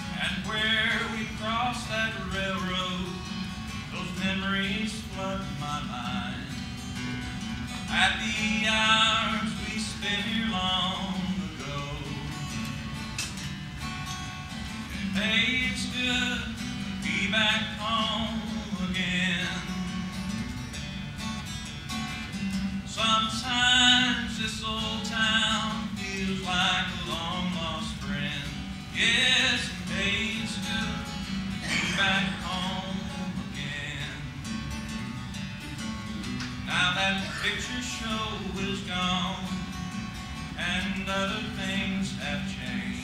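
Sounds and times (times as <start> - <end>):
man singing: 0.0 - 6.6, 7.8 - 12.7, 14.9 - 20.4, 22.9 - 34.5, 36.7 - 39.9, 40.5 - 43.0
acoustic guitar strumming: 0.0 - 43.0.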